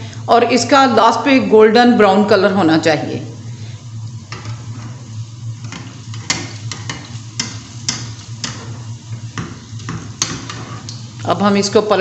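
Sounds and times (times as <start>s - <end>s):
food deep-frying in oil: 3.5s - 12.0s.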